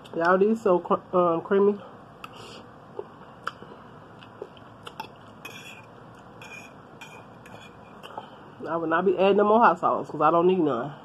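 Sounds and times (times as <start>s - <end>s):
wet mouth noises: 2.2s - 8.2s
person chewing noodles: 3.0s - 8.2s.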